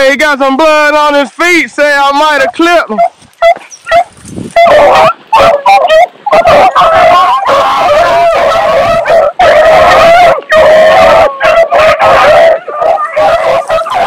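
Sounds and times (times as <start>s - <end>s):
dogs baying: 2.8s - 14.0s.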